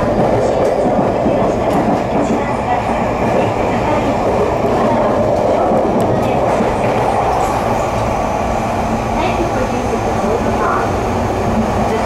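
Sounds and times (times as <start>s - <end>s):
train wheels on rail: 0.0s - 12.0s.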